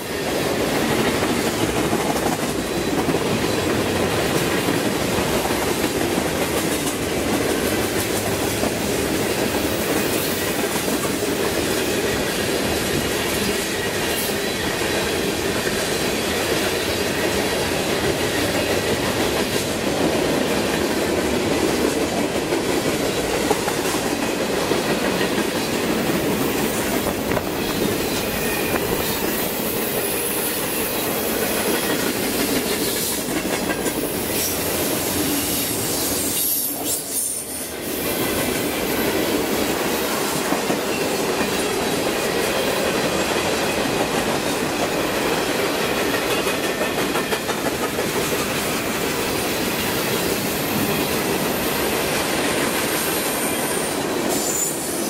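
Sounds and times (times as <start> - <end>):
freight train rumble: 0.0 - 55.0.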